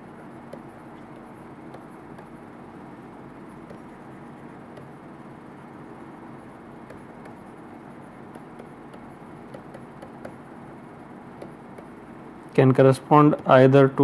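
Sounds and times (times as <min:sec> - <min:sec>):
room noise hiss and hum: 0:00.0 - 0:14.0
stylus clicking on tablet screen: 0:00.5 - 0:02.4, 0:04.7 - 0:05.0, 0:06.8 - 0:07.5, 0:08.3 - 0:10.4, 0:11.4 - 0:12.0.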